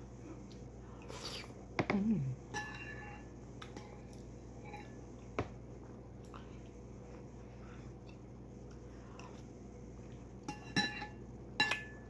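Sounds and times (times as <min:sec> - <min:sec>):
person humming: 0:01.9 - 0:02.4.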